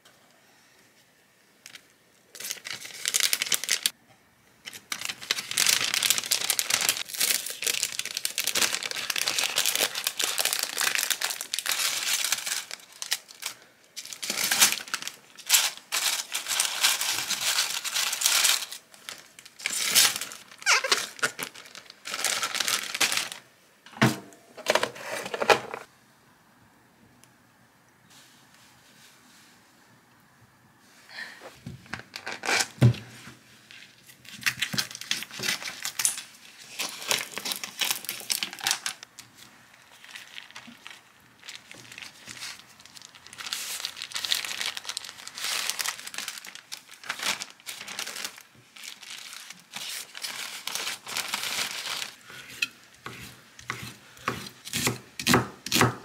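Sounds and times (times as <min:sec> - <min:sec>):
packaging crinkling: 0:01.6 - 0:04.0, 0:04.7 - 0:23.5, 0:31.9 - 0:32.9, 0:33.7 - 0:52.2.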